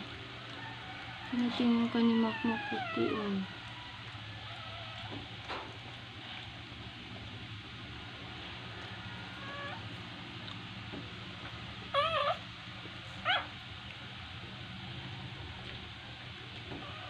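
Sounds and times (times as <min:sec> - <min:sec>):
puppy crying: 0:02.1 - 0:03.5, 0:09.2 - 0:09.9, 0:11.9 - 0:12.5, 0:13.2 - 0:13.6, 0:16.8 - 0:17.0.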